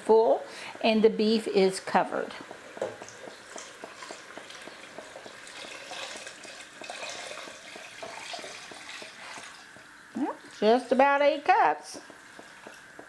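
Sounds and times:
water pouring into pot: 3.0 - 9.8.

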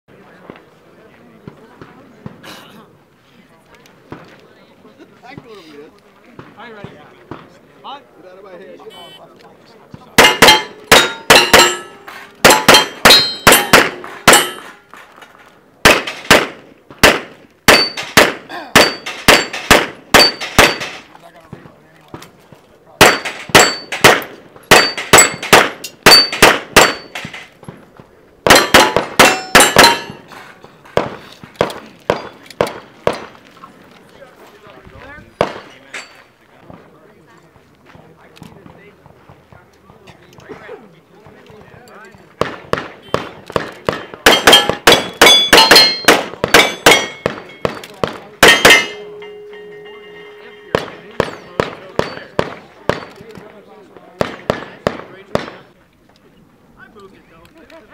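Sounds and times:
pistol shots: 10.2 - 14.7, 15.8 - 21.1, 23.0 - 27.4, 28.4 - 30.3, 35.4 - 35.7, 42.4 - 49.2, 50.7 - 53.2, 54.2 - 55.7
steel target plates ringing: 10.2 - 14.8, 17.7 - 18.2, 18.8 - 21.1, 23.0 - 27.3, 28.5 - 30.6, 44.3 - 52.4.

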